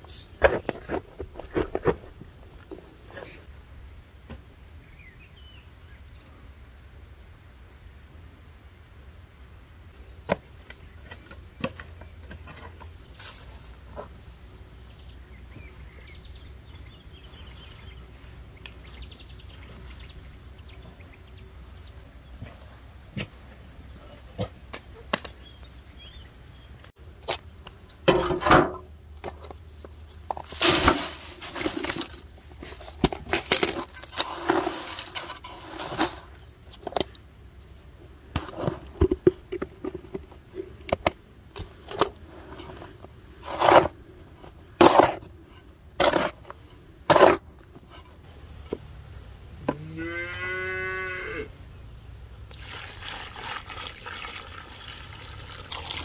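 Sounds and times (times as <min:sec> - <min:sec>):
metal scoop scraping crushed stone: 0:30.3 - 0:36.4, 0:42.3 - 0:43.9, 0:44.8 - 0:45.3, 0:46.0 - 0:46.5, 0:47.1 - 0:48.0
stone pouring into metal bucket: 0:30.4 - 0:32.2, 0:33.3 - 0:36.3, 0:52.5 - 0:56.0.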